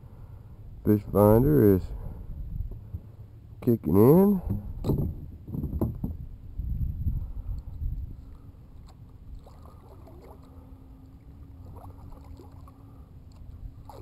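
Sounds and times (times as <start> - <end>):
faint steady hum: 0.0 - 14.0
paddle strokes in water: 8.3 - 14.0.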